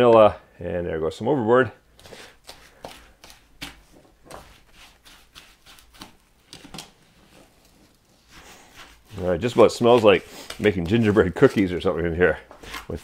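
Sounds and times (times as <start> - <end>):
wooden spoon scraping ceramic bowl: 3.3 - 6.2, 7.2 - 11.7, 12.6 - 13.0.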